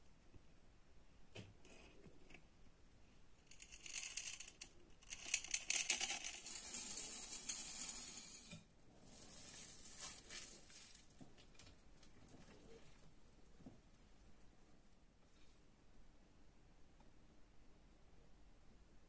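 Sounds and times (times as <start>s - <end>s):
chocolate chips rattling in glass bowl: 3.4s - 8.5s.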